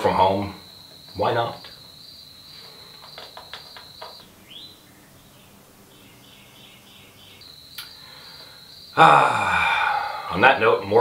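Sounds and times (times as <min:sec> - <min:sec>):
faint bird chirps: 0:00.0 - 0:11.0
insects chirring: 0:00.0 - 0:11.0
rising bird call: 0:08.0 - 0:10.4.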